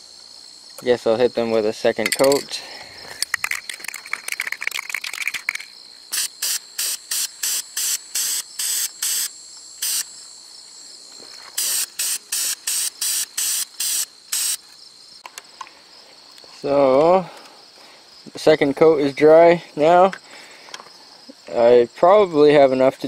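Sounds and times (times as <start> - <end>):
crickets chirring: 0.0 - 23.0
aerosol can ball rattling: 3.2 - 9.2, 11.6 - 14.6
spray paint hissing: 3.2 - 10.2, 11.4 - 14.6.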